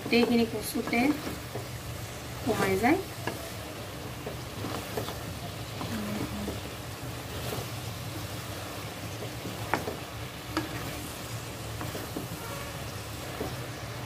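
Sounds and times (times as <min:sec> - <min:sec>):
low sizzle: 0:00.0 - 0:14.0
spatula stirring frying vegetables: 0:00.0 - 0:14.0
spatula clacking against pan: 0:09.2 - 0:10.9.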